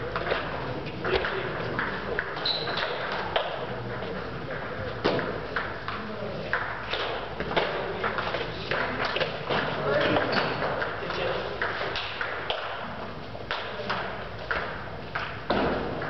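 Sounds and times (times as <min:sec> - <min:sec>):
brief high squeak: 0:02.4 - 0:02.8.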